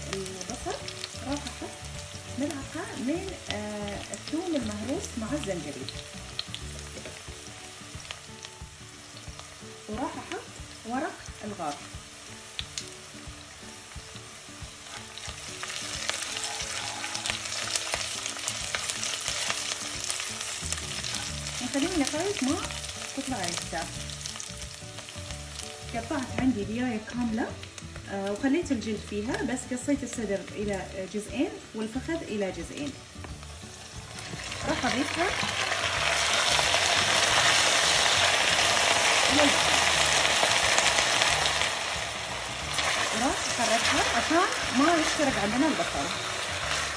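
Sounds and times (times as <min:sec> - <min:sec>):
onions sizzling in hot oil: 0:00.0 - 0:46.9.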